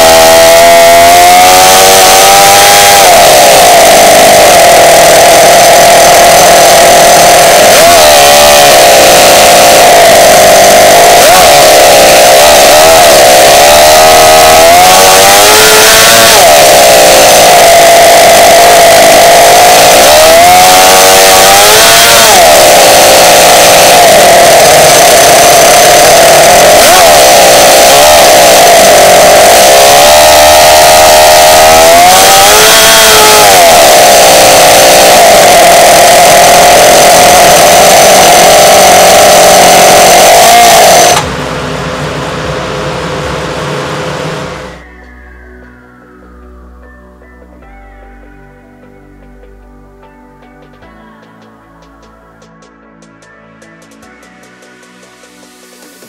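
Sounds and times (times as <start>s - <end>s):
model engine revving: 0.0s - 44.8s.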